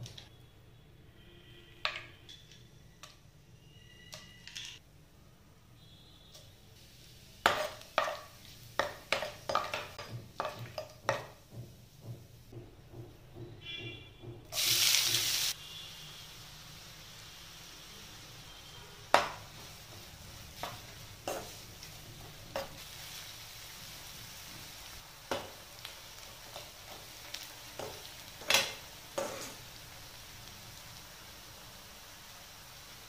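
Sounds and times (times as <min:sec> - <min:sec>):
onions sizzling in oil: 0:06.4 - 0:12.5, 0:14.5 - 0:33.0
metal spatula scraping pan: 0:28.5 - 0:29.6.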